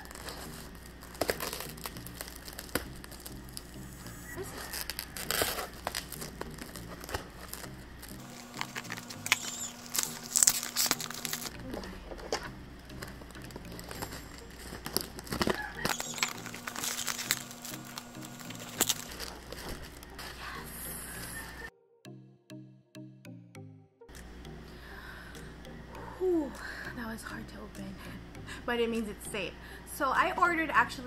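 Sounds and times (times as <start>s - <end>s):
scissors snipping plastic: 0.0s - 3.7s, 4.4s - 20.3s
plastic packaging crinkling: 0.0s - 21.7s.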